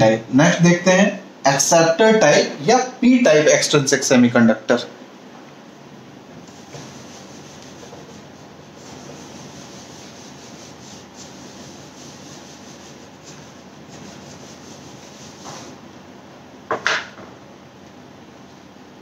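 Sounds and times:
duster rubbing on whiteboard: 6.4 - 15.8.

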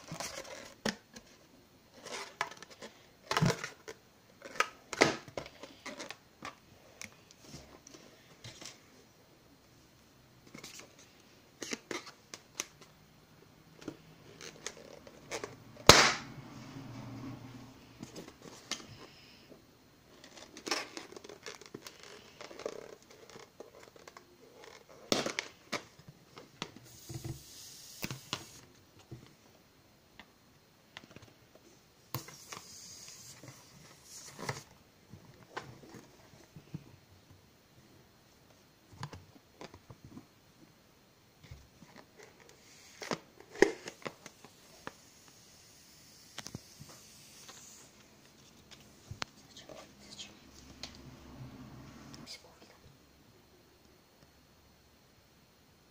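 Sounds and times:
balloon sharp crack: 15.8 - 16.3
balloon hissing: 26.9 - 28.6, 45.0 - 48.0.

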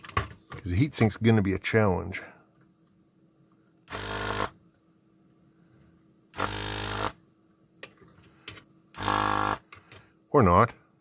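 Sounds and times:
desoldering vacuum pump buzzing: 3.8 - 4.6, 6.3 - 7.3, 8.9 - 10.0.

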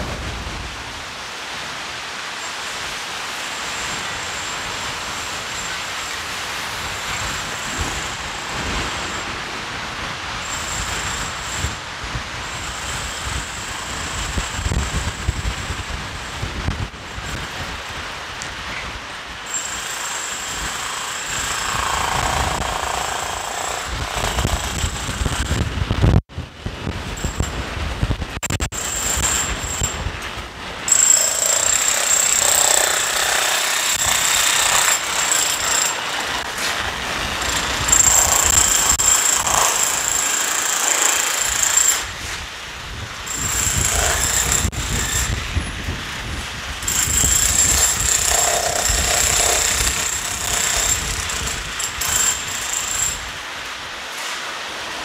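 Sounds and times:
street noise: 0.0 - 55.0
rapid mechanical hammering: 30.9 - 36.4, 43.3 - 45.0.

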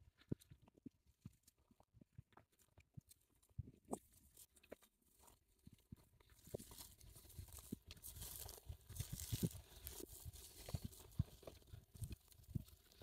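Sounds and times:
footsteps crunching through dry grass: 3.9 - 13.0.

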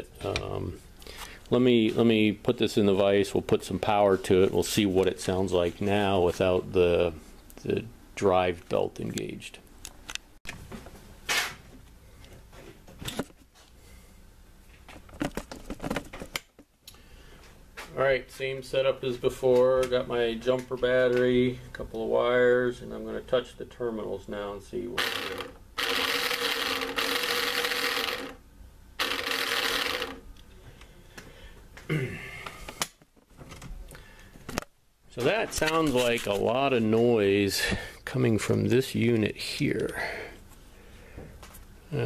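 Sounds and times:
motor and gearbox running: 25.0 - 28.4, 29.0 - 30.2.

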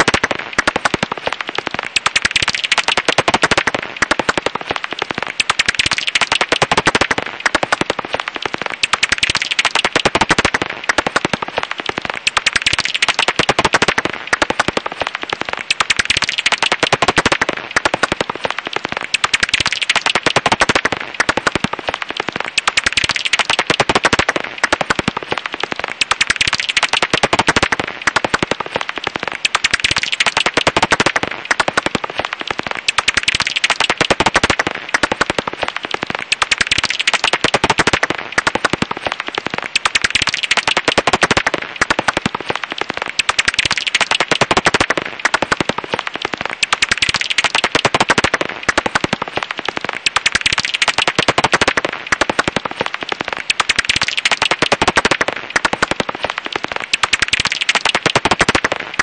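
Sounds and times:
bat clicks crackling: 0.0 - 59.0.

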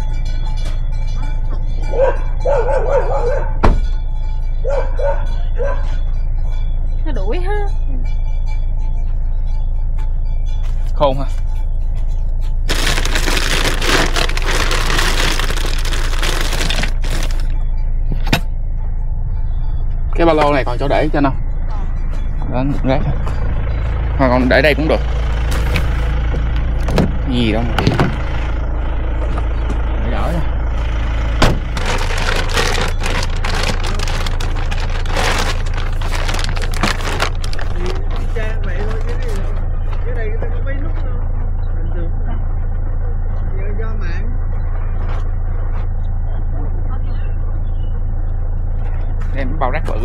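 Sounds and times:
steady low hum: 0.0 - 50.0
plastic bag crinkling: 12.7 - 17.5, 31.7 - 39.3.

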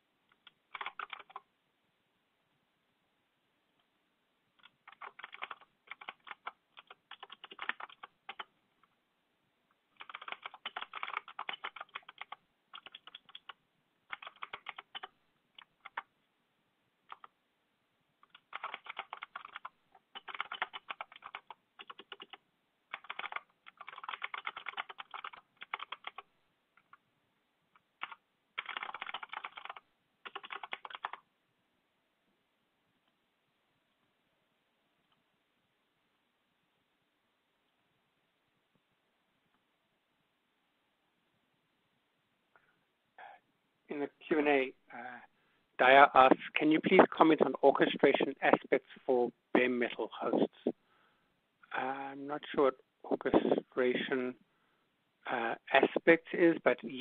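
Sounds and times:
typing on computer keyboard: 0.3 - 1.4, 4.6 - 8.5, 10.0 - 16.1, 17.1 - 17.4, 18.2 - 27.0, 27.8 - 31.2.

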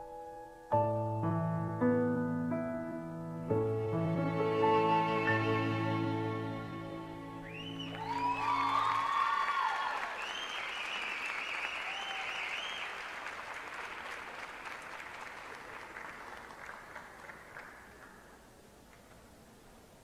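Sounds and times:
audience cheering with whoops: 7.4 - 13.1
audience applauding: 7.4 - 19.1.

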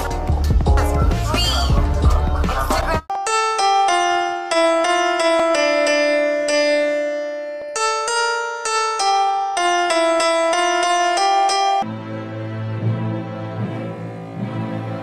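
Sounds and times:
upright piano melody: 0.0 - 12.0.

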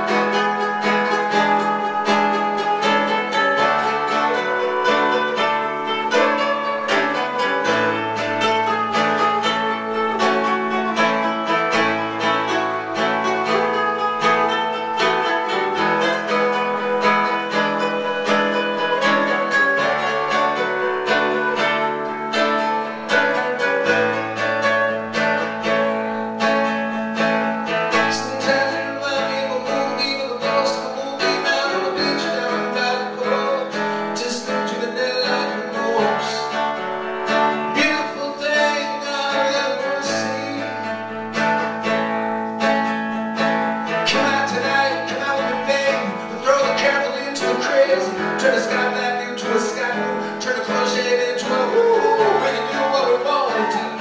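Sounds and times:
fingerstyle acoustic guitar: 0.0 - 54.0.

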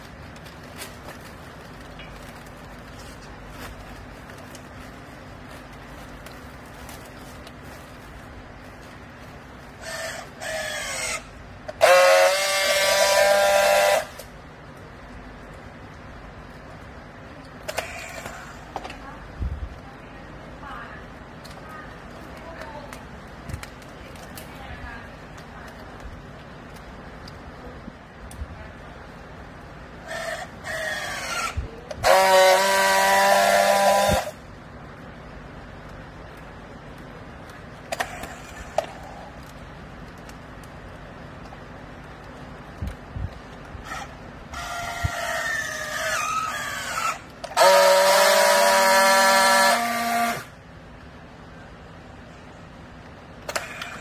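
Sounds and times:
loud steady welding buzz: 0.0 - 54.0
strapping tool buzzing: 9.8 - 14.3, 30.0 - 34.4, 43.8 - 50.5
strapping tool motor whirring: 9.8 - 14.3, 17.7 - 18.6, 30.0 - 34.4, 43.8 - 50.5.

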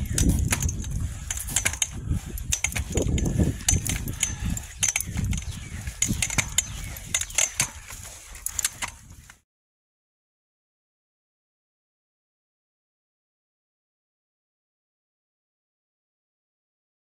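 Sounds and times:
footsteps on leaves and dirt: 0.0 - 9.4.

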